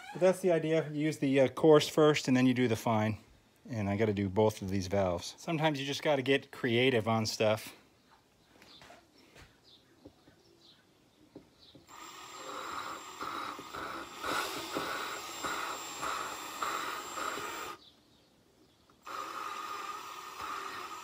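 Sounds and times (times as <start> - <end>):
drill grinding whirr: 11.8 - 17.8, 19.0 - 21.0.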